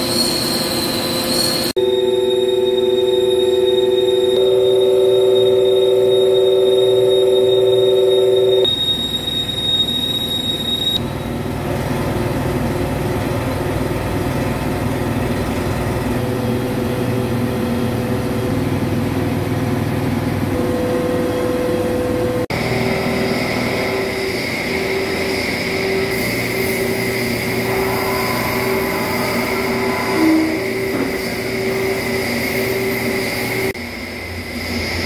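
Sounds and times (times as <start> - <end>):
high steady machine whine: 0.0 - 35.0
ringing tone: 1.7 - 11.0, 23.8 - 33.0
milling machine cutting steel: 22.5 - 35.0.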